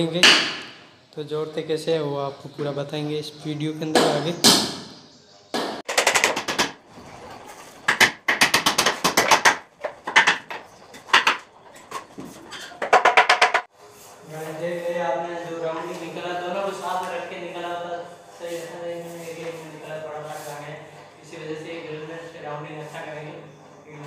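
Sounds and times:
plywood panels rattling and scraping: 6.0s - 13.7s.

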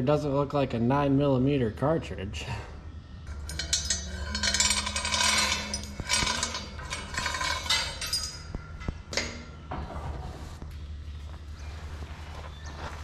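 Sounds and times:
steady low hum: 0.0s - 13.0s
metal chain clinking and rattling: 3.3s - 9.6s.

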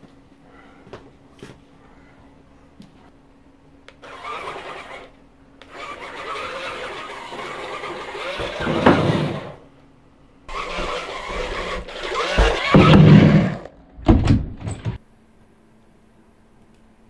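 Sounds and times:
electric motors whirring: 3.9s - 9.6s, 10.5s - 13.7s.

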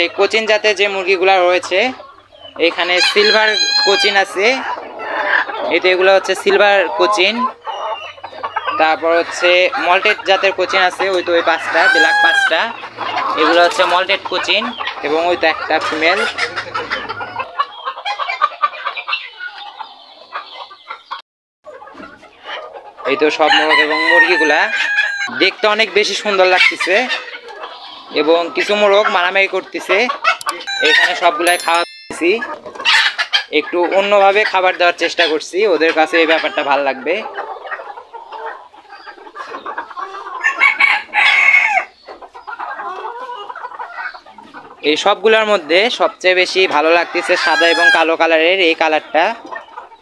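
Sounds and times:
chickens clucking: 0.0s - 50.0s
rooster crowing: 23.5s - 25.3s, 30.5s - 31.1s.

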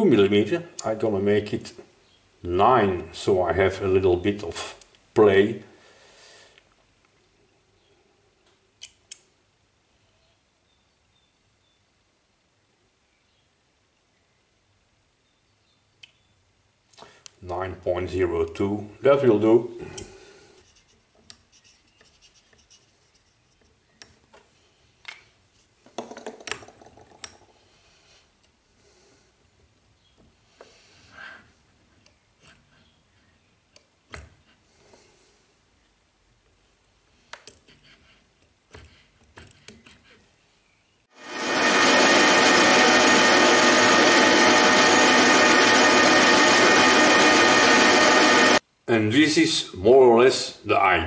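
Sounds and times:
metal lathe whirring: 41.2s - 48.6s.

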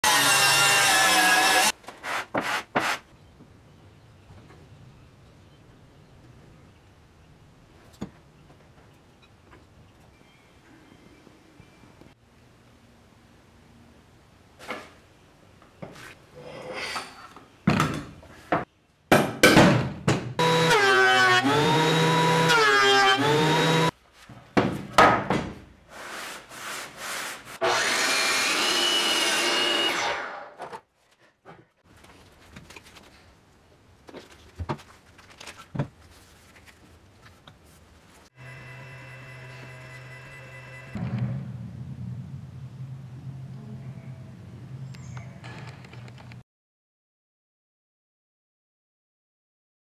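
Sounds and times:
power woodworking tool whining: 0.0s - 1.7s, 20.4s - 23.9s, 27.6s - 30.4s, 38.4s - 41.0s.

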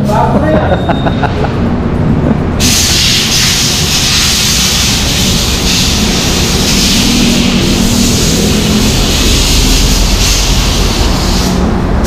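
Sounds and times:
compressed air hissing: 2.6s - 11.9s.

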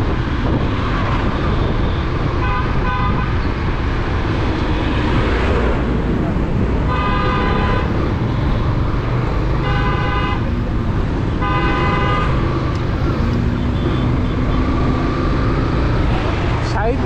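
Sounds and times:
vehicle horn honking: 1.8s - 3.4s, 6.9s - 8.6s, 9.6s - 10.6s, 11.3s - 12.6s, 13.4s - 14.8s.

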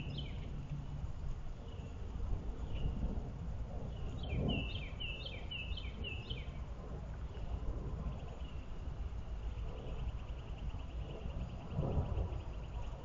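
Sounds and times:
low outdoor rumble: 0.0s - 13.0s
songbird singing: 0.0s - 13.0s.

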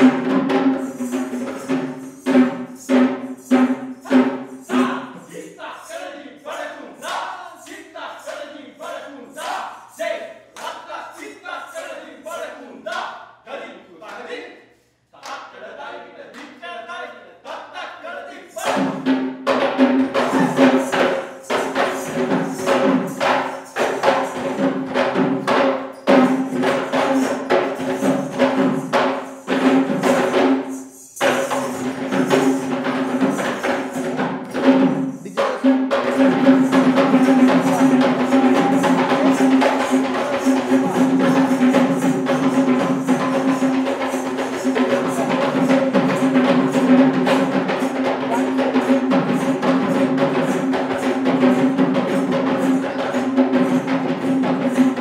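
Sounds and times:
hand drums playing fast rhythms: 0.0s - 5.2s, 18.6s - 55.0s
person chanting: 4.1s - 14.6s, 15.2s - 19.0s, 20.0s - 21.9s, 35.1s - 45.9s, 52.4s - 53.9s.

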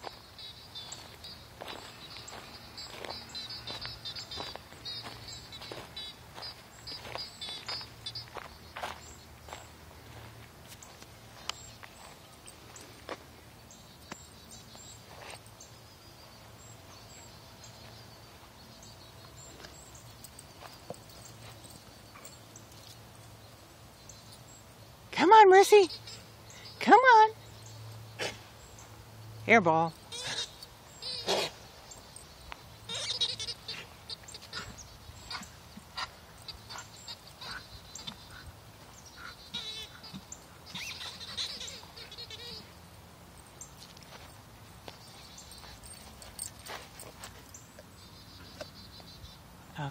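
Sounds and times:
distant birds chirping: 0.0s - 49.9s
rubber squeaky toy squeaking: 32.9s - 33.6s.

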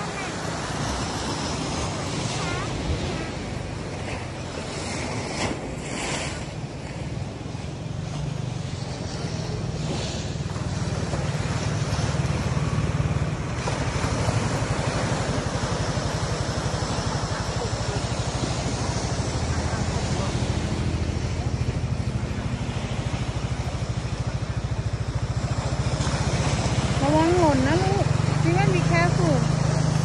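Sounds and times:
surf rumbling: 0.0s - 30.0s
motorbike engine running: 9.0s - 30.0s.

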